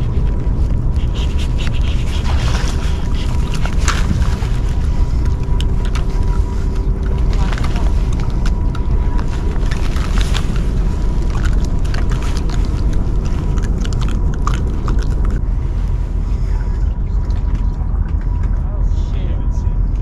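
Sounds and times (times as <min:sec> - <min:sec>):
rustling and crackling clicks: 0:00.0 - 0:15.4
steady low rumble: 0:00.0 - 0:20.0.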